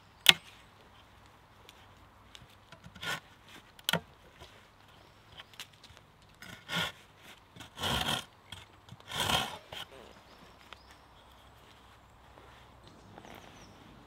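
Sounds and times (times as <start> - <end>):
saw cutting wood: 6.4 - 8.3, 8.9 - 10.0.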